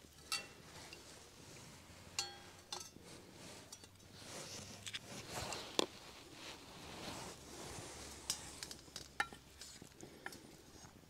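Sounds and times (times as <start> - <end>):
metal cookware clinking: 0.0 - 0.6, 2.2 - 3.0
soft scraping and rustling: 0.0 - 11.0.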